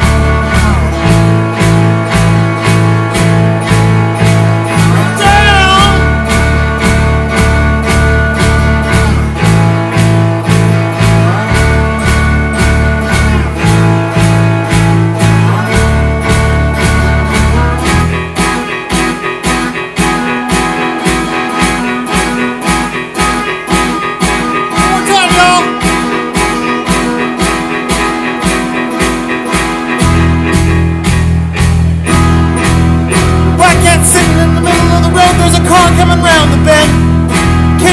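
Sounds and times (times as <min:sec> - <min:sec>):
blues band playing: 0:00.0 - 0:37.9
heavy low bass riff: 0:00.0 - 0:37.9
sliding high guitar run: 0:00.0 - 0:37.9.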